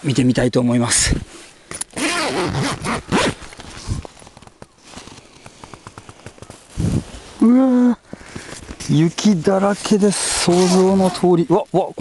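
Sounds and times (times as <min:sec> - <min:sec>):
tent zipper unzipping: 0:02.0 - 0:04.0, 0:10.2 - 0:11.3.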